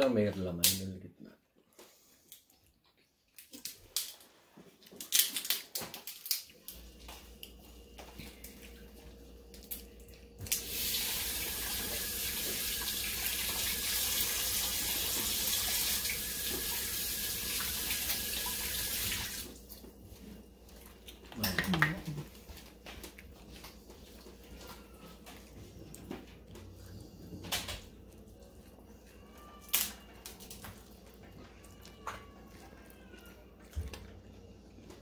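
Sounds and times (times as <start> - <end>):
crab shells cracking: 4.9 - 6.7, 29.5 - 30.8
running water: 10.5 - 19.6.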